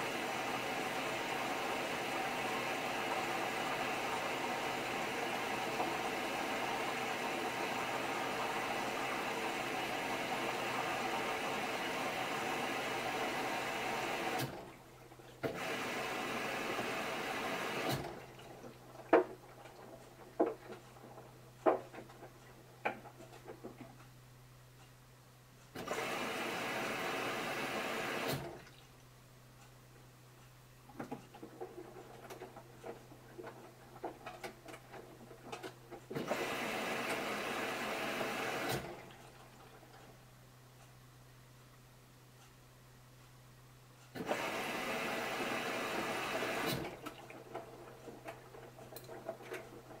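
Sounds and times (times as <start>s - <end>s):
water rushing into washing machine: 0.0s - 14.8s, 15.4s - 22.3s, 25.8s - 28.8s, 31.4s - 39.8s, 44.2s - 50.0s.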